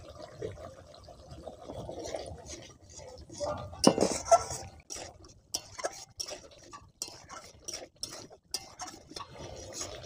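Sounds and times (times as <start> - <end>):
metal spatula scraping pan: 2.1 - 10.0.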